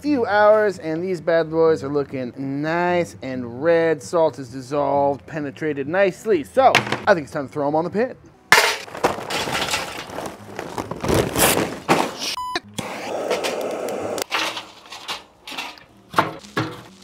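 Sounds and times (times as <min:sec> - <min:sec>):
coals clanking in steel firebox: 0:08.5 - 0:10.3, 0:13.2 - 0:17.0
charcoal clattering into metal: 0:08.5 - 0:12.3, 0:14.2 - 0:17.0
short beep: 0:12.4 - 0:12.7
propane torch hissing: 0:12.8 - 0:14.3.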